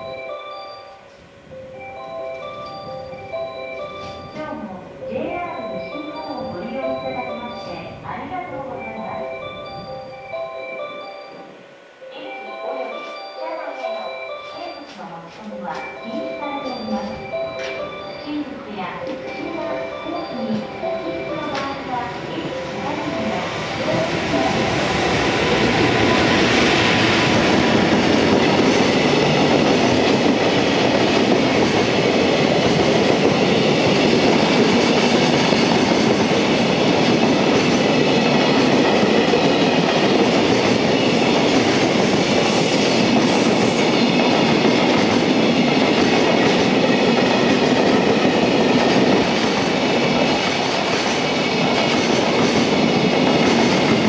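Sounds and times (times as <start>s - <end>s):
electric locomotive passing: 0.0s - 54.0s
train wheels clattering on rail: 3.7s - 4.4s, 18.9s - 22.3s, 22.9s - 54.0s.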